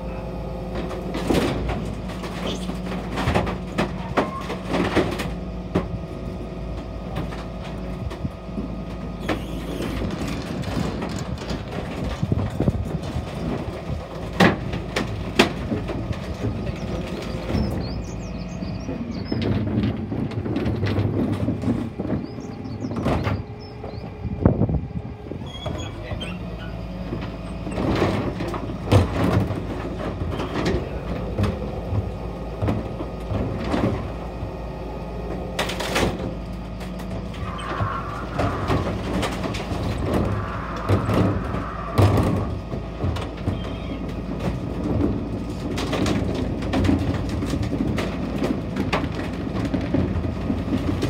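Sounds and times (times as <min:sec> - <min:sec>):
packer crushing timber: 0:00.0 - 0:24.0, 0:25.4 - 0:51.0
truck engine and hydraulic hum: 0:00.0 - 0:51.0.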